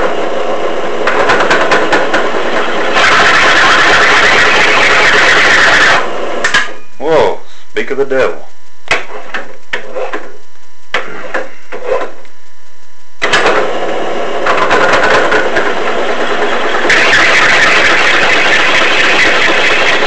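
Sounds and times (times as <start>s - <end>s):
drill press cutting metal: 1.0s - 6.7s, 13.2s - 13.8s, 14.4s - 20.0s.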